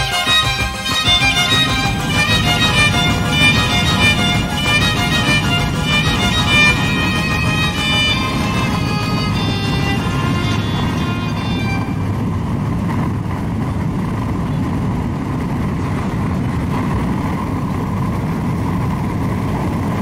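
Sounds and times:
bus engine and road noise: 0.0 - 20.0.

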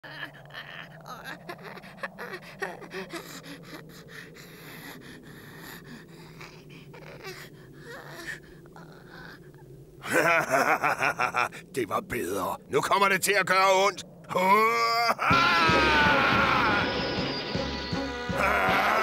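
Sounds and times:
boy gasping and breathing heavily: 0.0 - 9.7.

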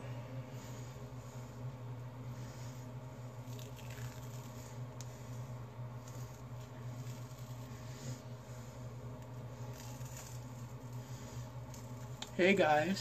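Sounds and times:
steady low hum: 0.0 - 13.0
face mask peeling off skin: 3.4 - 5.1, 6.0 - 7.9, 9.1 - 11.0.

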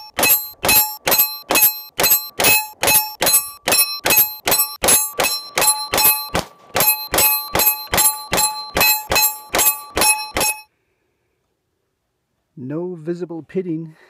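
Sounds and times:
steel target ringing: 0.0 - 10.7.

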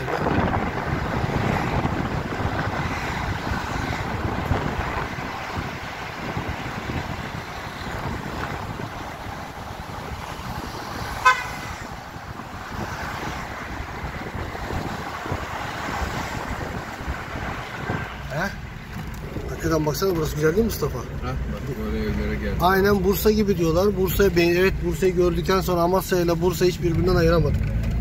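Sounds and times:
car driving slowly: 0.0 - 28.0
car horn toot: 11.2 - 11.9.

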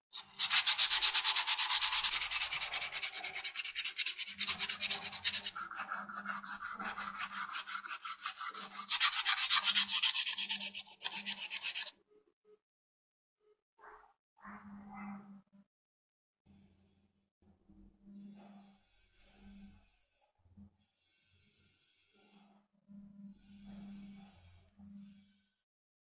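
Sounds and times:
sandpaper rubbing wood: 0.2 - 11.9.

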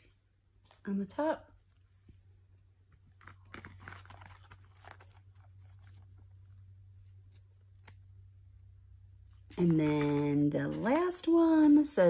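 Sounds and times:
paper crinkling and rustling: 3.0 - 8.0, 9.3 - 11.9
paper crackles: 3.1 - 8.0, 9.3 - 11.8.

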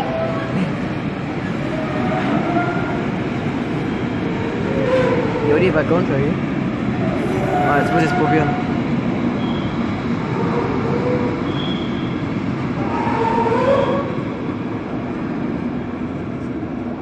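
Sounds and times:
train wheels rumbling on track: 0.0 - 17.0.

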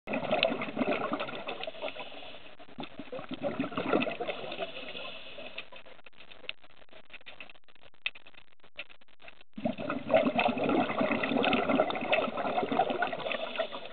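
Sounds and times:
underwater watery rushing: 0.1 - 5.6, 9.6 - 13.9
crackling clicks: 0.2 - 13.9.

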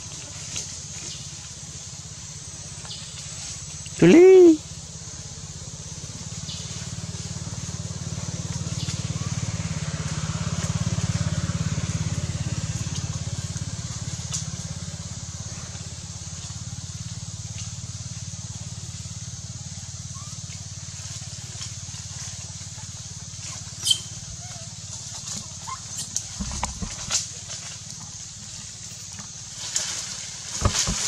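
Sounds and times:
small engine throbbing: 0.0 - 31.0
steady high hiss: 0.6 - 10.1.

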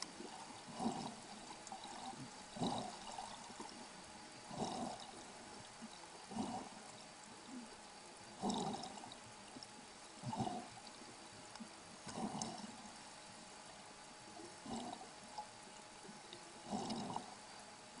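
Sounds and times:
water swishing and gurgling underwater: 0.0 - 18.0.

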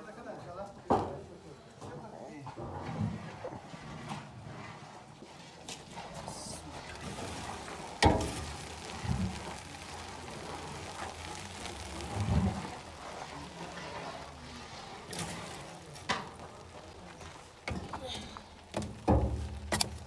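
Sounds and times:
faint fire hiss: 5.6 - 20.0.

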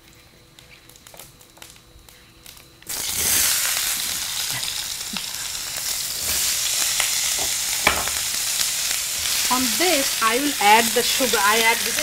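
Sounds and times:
apple slices sizzling in a pan: 2.8 - 12.0.

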